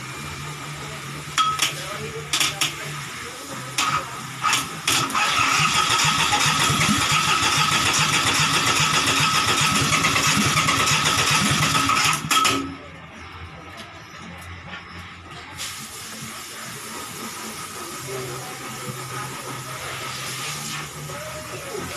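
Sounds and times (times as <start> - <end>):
diesel engine cranking on starter: 3.8 - 12.9.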